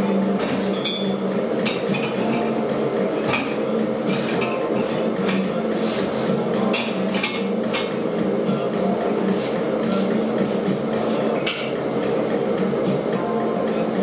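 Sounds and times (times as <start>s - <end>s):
steady low hum: 0.0s - 14.0s
dishes and utensils clinking: 0.4s - 2.6s, 3.2s - 8.0s, 11.1s - 11.8s.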